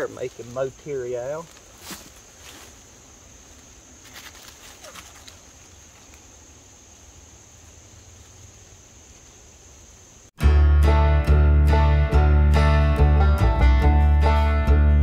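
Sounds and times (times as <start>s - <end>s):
steady high hiss: 0.0s - 10.4s.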